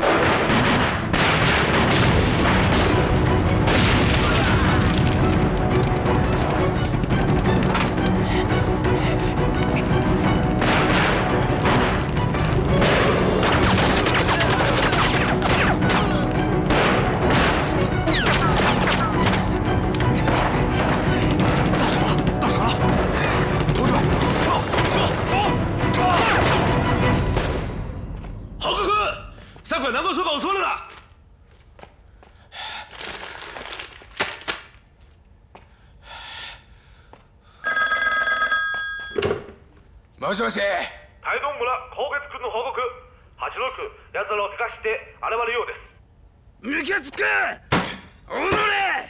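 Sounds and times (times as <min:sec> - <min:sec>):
explosions: 0:00.0 - 0:05.5
dramatic music score: 0:00.0 - 0:29.6
desk telephone ringing: 0:37.6 - 0:39.4.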